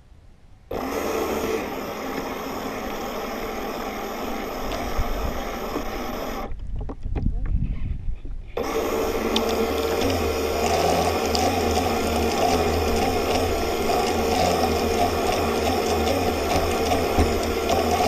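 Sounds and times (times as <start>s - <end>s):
boat motor whirr: 0.7s - 7.0s, 8.6s - 18.0s.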